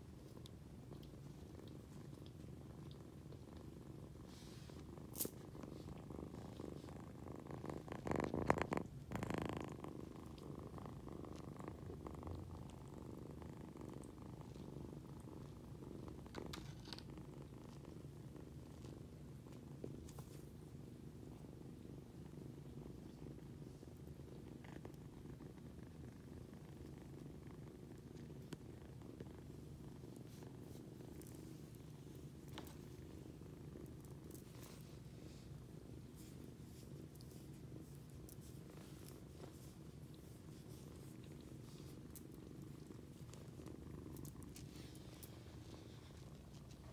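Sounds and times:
kitten purring: 0:00.0 - 0:46.9.

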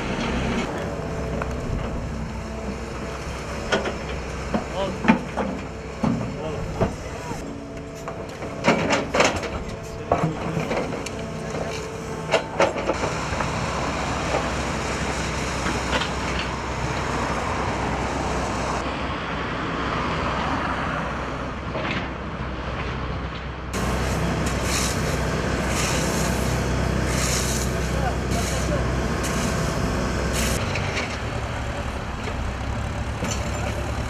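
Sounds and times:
excavator diesel engine running: 0:00.0 - 0:19.0, 0:23.7 - 0:34.0
passing traffic: 0:00.0 - 0:34.0
excavator knocks and clanks: 0:03.5 - 0:13.6, 0:21.7 - 0:25.0, 0:33.0 - 0:34.0.

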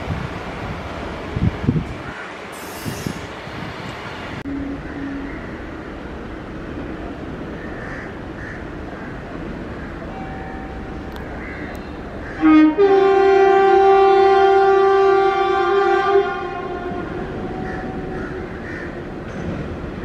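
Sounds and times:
locomotive horn blasts: 0:04.4 - 0:05.5, 0:12.3 - 0:18.1.

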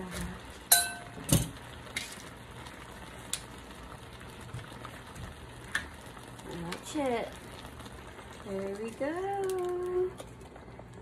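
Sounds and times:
sharp ringing clink: 0:00.7 - 0:01.1.

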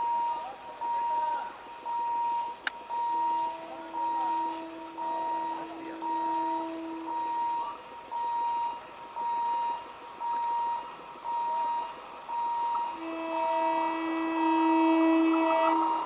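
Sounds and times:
short beeps: 0:00.0 - 0:16.0
train horn blast: 0:02.9 - 0:08.0, 0:12.7 - 0:16.0.

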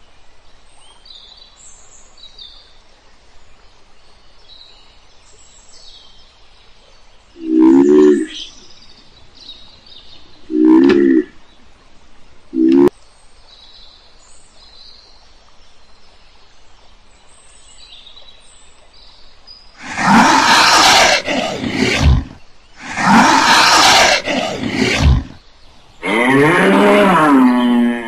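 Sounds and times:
loud rough animal roars: 0:19.8 - 0:25.4, 0:26.0 - 0:28.0
short low animal calls: 0:19.8 - 0:25.4.

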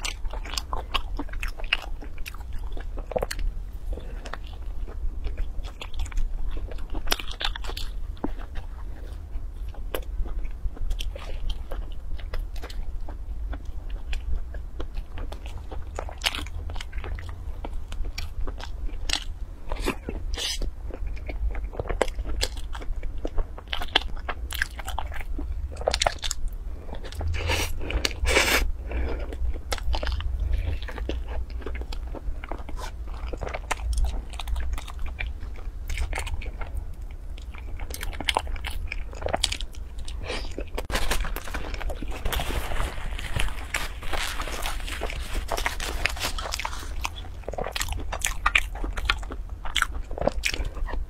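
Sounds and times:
crisp bites and chewing: 0:29.3 - 0:51.0.

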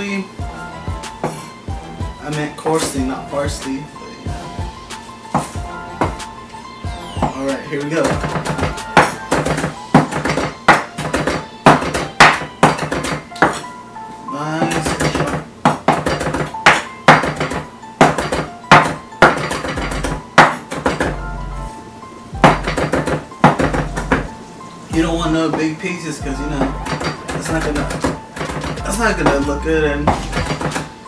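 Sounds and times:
background music: 0:00.0 - 0:31.0
knife chopping on wooden board: 0:01.2 - 0:01.5, 0:05.3 - 0:06.3, 0:08.0 - 0:13.7, 0:14.6 - 0:21.2, 0:22.4 - 0:24.3, 0:26.6 - 0:29.5, 0:30.1 - 0:30.9.

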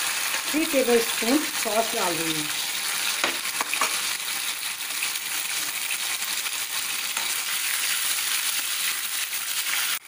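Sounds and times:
sauce sizzling in hot oil: 0:00.0 - 0:10.0.

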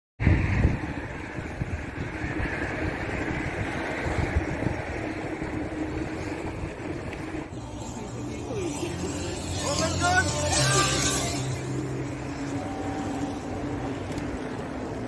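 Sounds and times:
wind buffeting microphone: 0:00.2 - 0:07.6
road hiss: 0:00.2 - 0:15.0.

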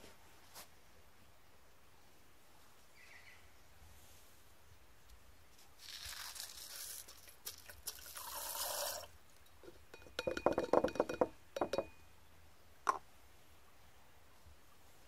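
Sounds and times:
metal bits pouring into water: 0:05.8 - 0:09.1
sharp clinks on glass: 0:09.9 - 0:12.0.

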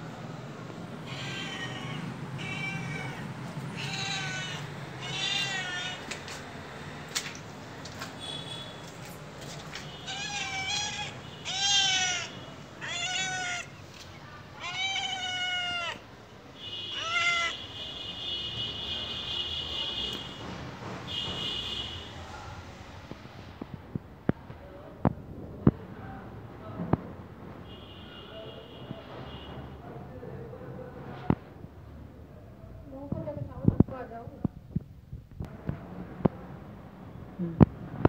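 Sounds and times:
cat meowing: 0:01.0 - 0:06.2, 0:10.0 - 0:13.8, 0:14.5 - 0:16.1, 0:16.9 - 0:17.6.

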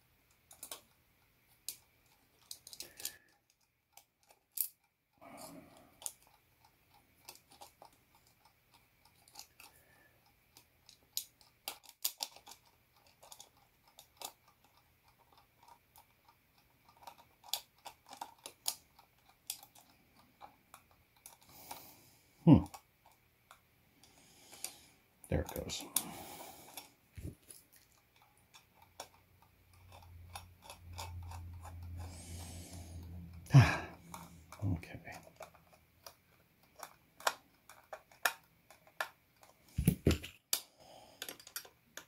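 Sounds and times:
small parts clicking on tabletop: 0:00.3 - 0:01.0, 0:01.6 - 0:05.0, 0:05.7 - 0:21.8, 0:35.2 - 0:42.0.

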